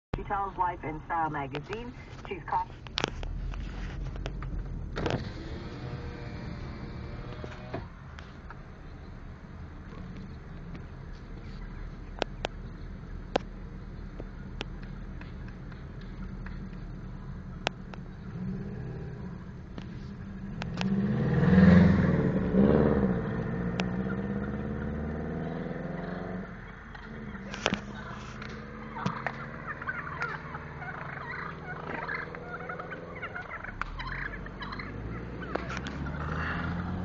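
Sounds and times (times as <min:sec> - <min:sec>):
car engine humming: 0:00.0 - 0:37.0
turkeys gobbling: 0:26.0 - 0:36.6.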